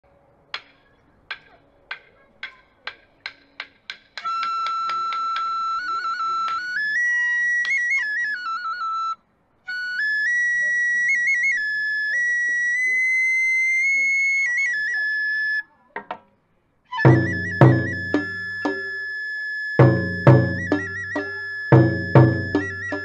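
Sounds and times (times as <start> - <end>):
bamboo flute note: 16.9 - 19.2, 19.8 - 23.0
sharp percussion strikes: 17.0 - 19.0, 19.8 - 23.0.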